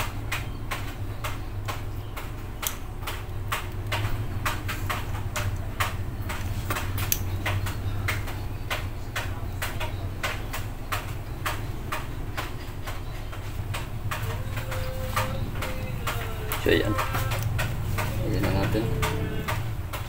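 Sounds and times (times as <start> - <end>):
sharp ticks: 0.0 - 20.0.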